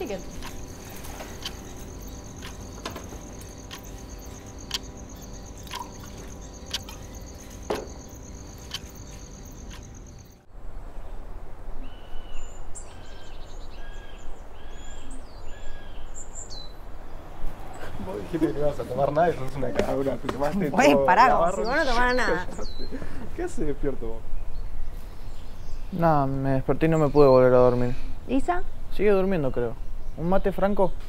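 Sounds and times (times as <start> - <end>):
birds chirping: 0.0 - 10.5, 11.8 - 31.0
crickets trilling: 0.0 - 10.5
light clicks: 1.3 - 4.9.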